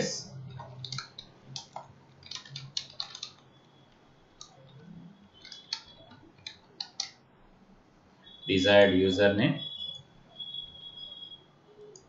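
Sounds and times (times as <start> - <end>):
keyboard typing: 0.2 - 7.2.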